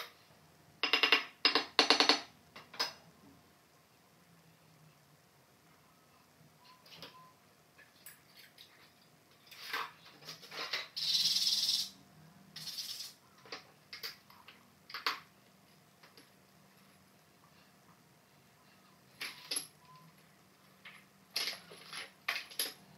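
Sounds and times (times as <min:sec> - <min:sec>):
mosaic tiles clicking and tapping: 0:00.8 - 0:02.9.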